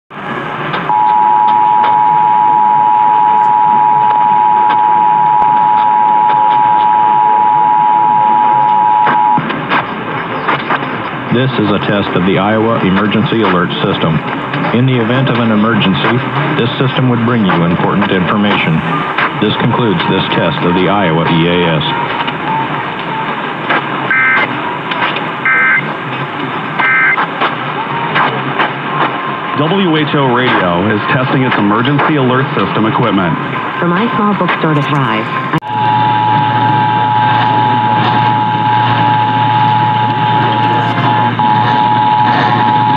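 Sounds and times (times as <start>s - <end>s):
radio static hiss: 0.1s - 42.9s
two-tone alert signal: 0.9s - 9.4s, 24.1s - 24.5s, 25.4s - 25.9s, 26.8s - 27.2s, 34.8s - 42.9s
shrill two-tone digital bursts: 24.1s - 24.5s, 25.5s - 25.8s, 26.8s - 27.2s.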